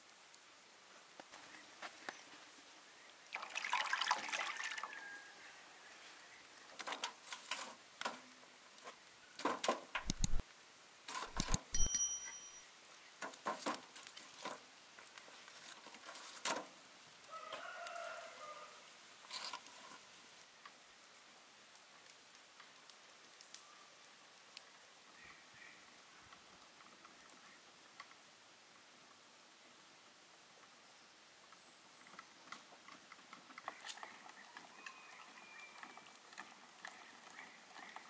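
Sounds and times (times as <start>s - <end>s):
rooster crowing: 4.6s - 6.1s, 17.3s - 18.9s
sharp clicks and knocks: 9.4s - 10.4s, 11.2s - 12.4s.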